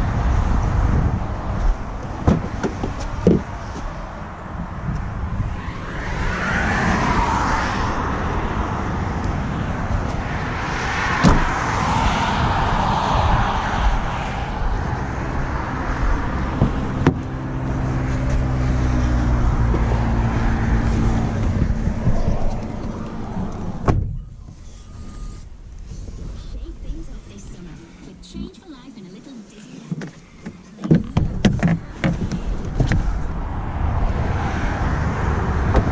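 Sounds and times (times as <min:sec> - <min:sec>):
low engine hum: 0:00.0 - 0:35.9
wind: 0:00.0 - 0:35.9
sharp knocks: 0:02.2 - 0:03.5
car door shutting: 0:11.2 - 0:11.5, 0:23.6 - 0:24.3, 0:35.7 - 0:35.9.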